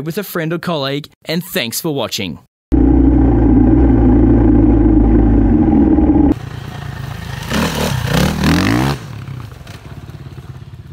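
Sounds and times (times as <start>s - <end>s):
dirt bike engine running: 2.7s - 6.4s
dirt bike revving and accelerating: 7.3s - 10.4s.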